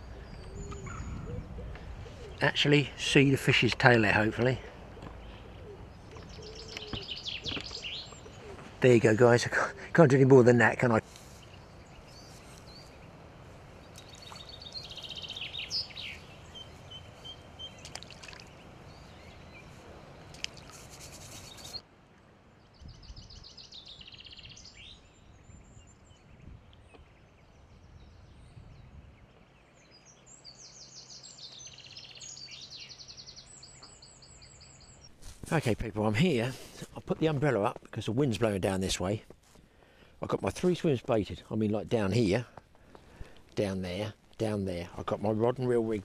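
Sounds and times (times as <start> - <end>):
wind rumble: 0.0 - 3.9
small birds trilling and chirping: 0.0 - 21.8, 22.4 - 46.0.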